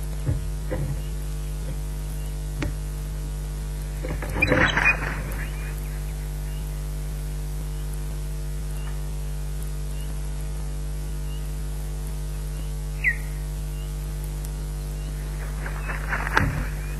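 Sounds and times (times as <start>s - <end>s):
electrical mains hum: 0.0s - 16.9s
falling bird call: 3.9s - 6.8s, 13.0s - 13.9s, 14.9s - 16.9s
faint high bird chirps: 4.1s - 6.9s, 12.5s - 14.0s.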